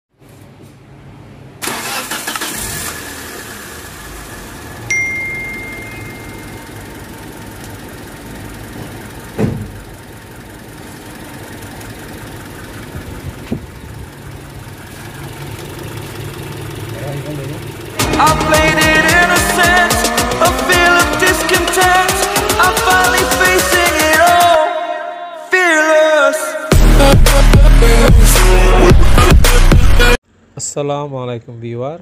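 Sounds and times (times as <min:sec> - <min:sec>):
car engine starting and idling: 0:01.1 - 0:24.6
short high beep: 0:04.9 - 0:06.7
thump: 0:09.4 - 0:09.8.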